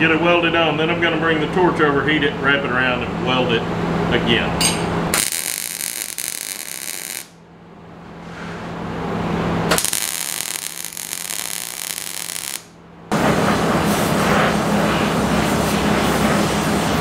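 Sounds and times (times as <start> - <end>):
steady low hum: 0.0 - 17.0
welder arc crackling: 5.1 - 7.4, 9.7 - 12.8.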